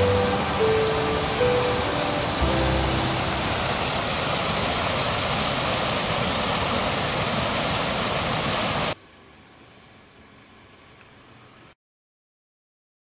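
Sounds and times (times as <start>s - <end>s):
stream rushing over cascade: 0.0s - 9.0s
faint hiss: 0.0s - 11.8s.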